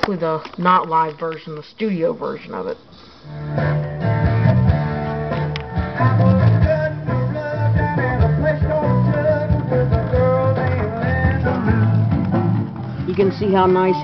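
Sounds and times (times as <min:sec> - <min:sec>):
rock song on record player: 0:03.2 - 0:14.0.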